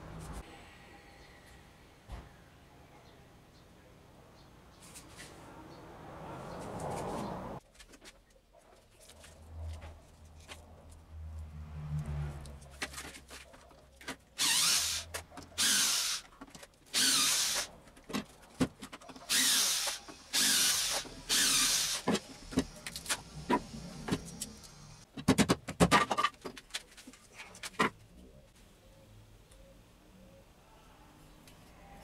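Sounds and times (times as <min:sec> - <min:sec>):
cordless drill driving screws: 0:14.4 - 0:16.3, 0:16.9 - 0:17.7, 0:19.3 - 0:25.0
sharp knocks and clicks: 0:25.1 - 0:26.9.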